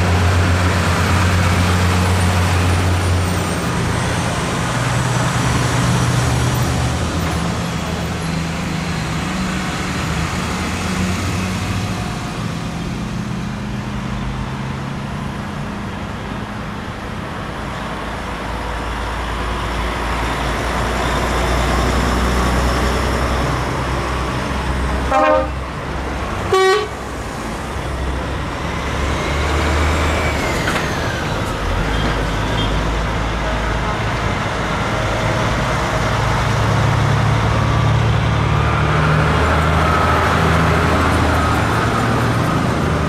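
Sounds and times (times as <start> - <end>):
diesel trucks driving past: 0.0 - 43.0
truck horn blasts: 25.1 - 25.6, 26.5 - 27.0.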